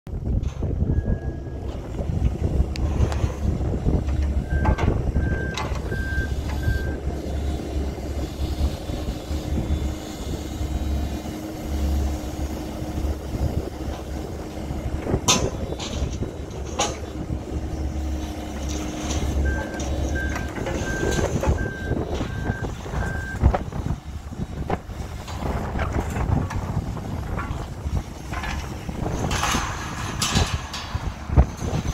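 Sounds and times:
excavator diesel engine running: 0.1 - 31.9
reversing alarm beeping: 0.8 - 1.7, 4.3 - 11.1, 18.6 - 23.5.

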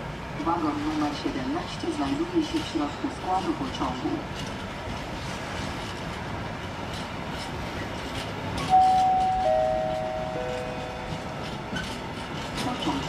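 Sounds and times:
wheels clicking over rail joints: 3.4 - 13.0
descending three-note chime: 8.8 - 11.1.

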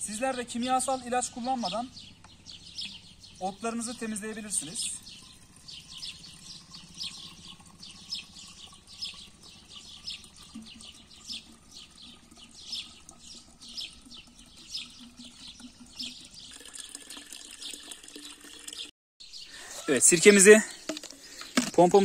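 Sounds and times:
liquid glugging into tank: 5.2 - 18.9.

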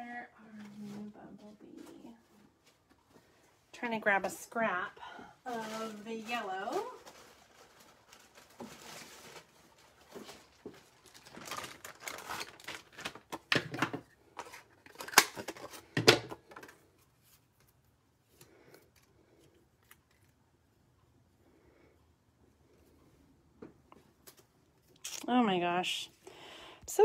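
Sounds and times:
cardstock rustling and crinkling: 5.4 - 20.4.

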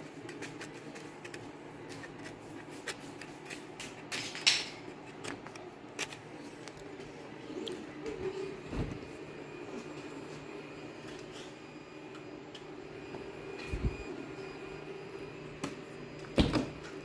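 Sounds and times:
three-d printer humming: 4.8 - 17.0.

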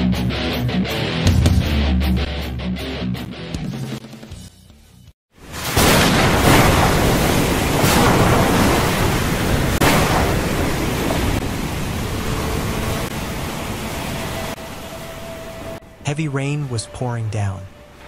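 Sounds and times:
heavy rain pouring: 5.4 - 16.8.

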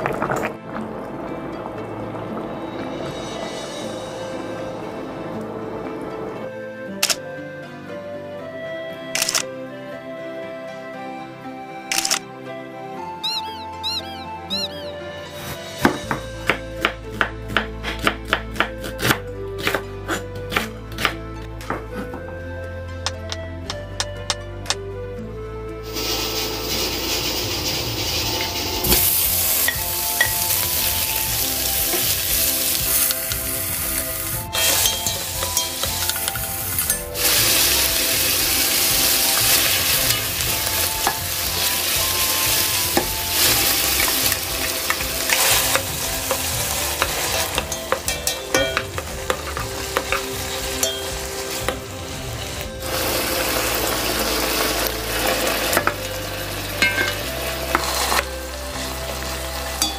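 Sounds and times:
meat sizzling in oil: 25.8 - 59.9
wooden spatula stirring in pot: 25.9 - 53.8.

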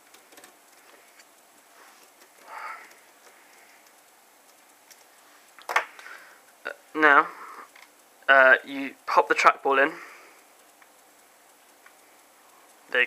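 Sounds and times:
screwdriver ticking: 0.0 - 6.3, 7.0 - 13.0.

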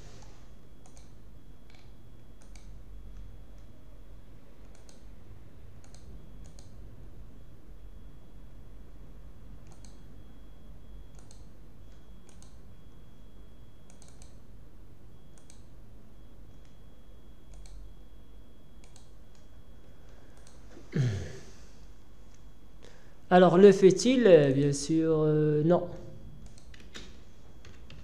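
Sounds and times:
faint high whine: 0.0 - 27.9
steady low hum: 0.0 - 28.0
computer mouse clicking: 0.2 - 3.7, 4.6 - 5.1, 5.8 - 6.8, 9.6 - 10.0, 11.1 - 12.6, 13.8 - 14.4, 15.3 - 15.7, 17.5 - 17.8, 18.8 - 19.5, 20.4 - 20.6, 26.4 - 28.0.

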